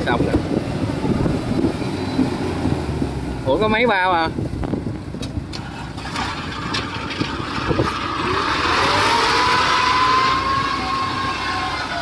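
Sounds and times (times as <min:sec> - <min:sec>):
harvester engines running: 0:00.0 - 0:12.0
engine whine rising in pitch: 0:06.0 - 0:12.0.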